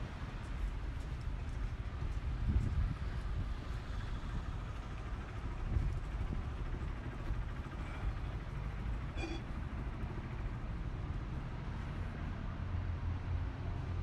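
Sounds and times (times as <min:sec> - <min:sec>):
street traffic rumble: 0:00.0 - 0:14.0
brief high-pitched squeak: 0:09.2 - 0:09.5.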